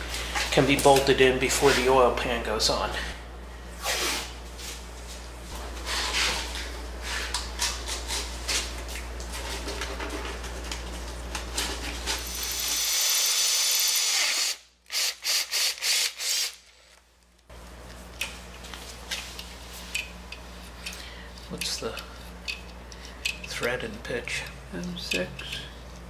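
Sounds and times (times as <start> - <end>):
drill running: 12.2 - 16.6.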